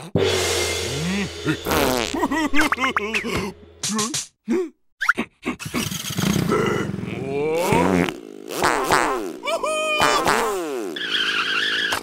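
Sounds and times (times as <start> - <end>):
buzzing toy car engine effect: 5.6 - 12.0
cartoon characters' wordless cries: 9.4 - 10.6.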